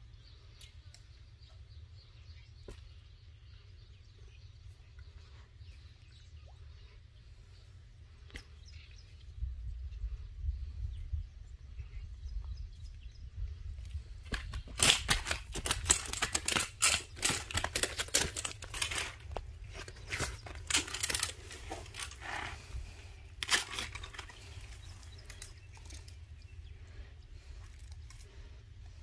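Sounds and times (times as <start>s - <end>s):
crackling and rustling clicks: 14.2s - 22.6s, 23.4s - 26.2s.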